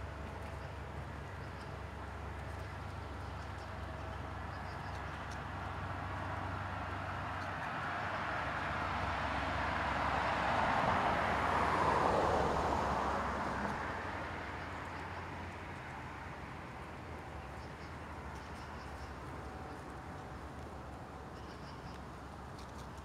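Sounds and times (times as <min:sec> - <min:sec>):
vehicle passing by: 0:08.8 - 0:14.9.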